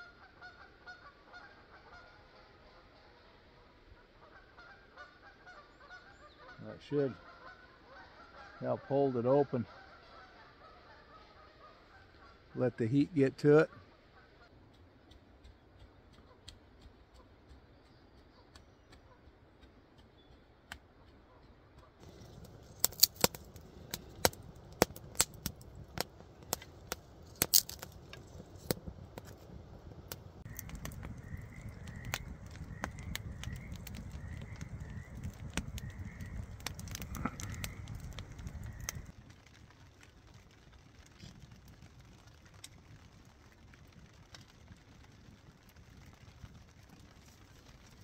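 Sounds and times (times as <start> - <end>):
wood fire crackling and popping: 14.5 - 48.0
low rush of burning: 22.0 - 48.0.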